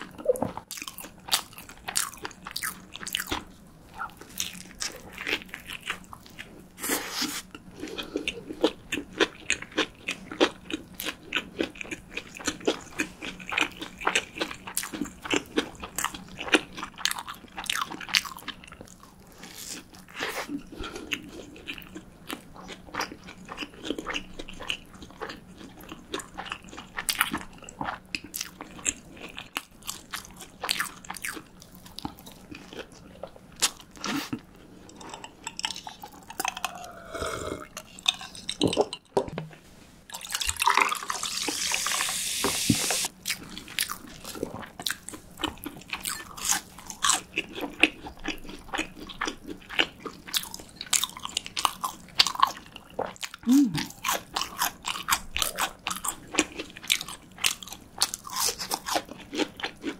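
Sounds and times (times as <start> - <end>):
crunchy chewing: 0.0 - 38.9, 43.0 - 59.9
wet mouth sounds: 53.3 - 54.2.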